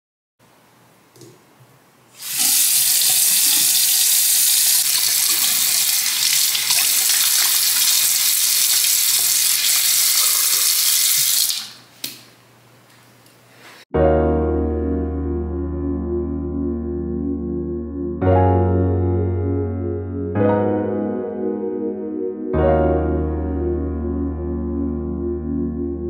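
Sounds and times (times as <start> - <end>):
faucet stream into sink: 2.2 - 11.8.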